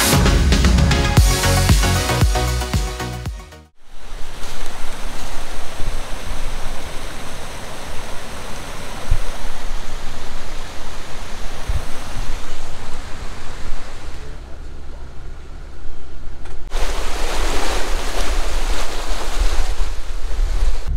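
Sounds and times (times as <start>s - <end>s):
creek water rushing over rocks: 3.8s - 14.3s, 16.7s - 20.8s.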